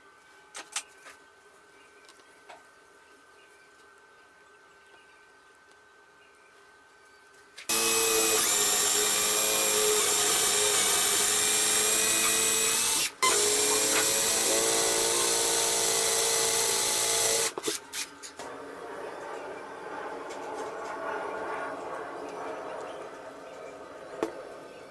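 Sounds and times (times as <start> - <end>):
cordless drill whining: 7.7 - 17.8
drill trigger blips: 7.7 - 17.8.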